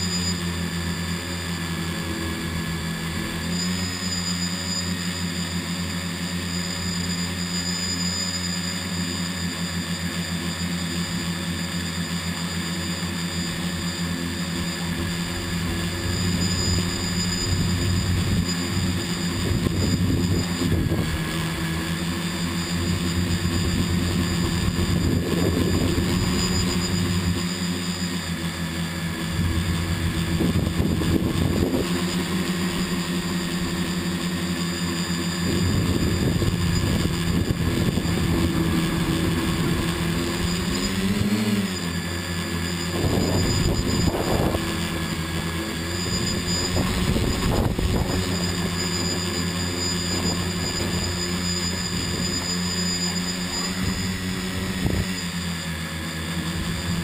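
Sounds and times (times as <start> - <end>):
drone motors whining: 0.0 - 57.0
wind rumbling on microphone: 14.9 - 21.8, 22.8 - 27.3, 29.1 - 32.0, 35.4 - 41.3, 42.9 - 45.1, 46.0 - 49.2, 53.7 - 55.2.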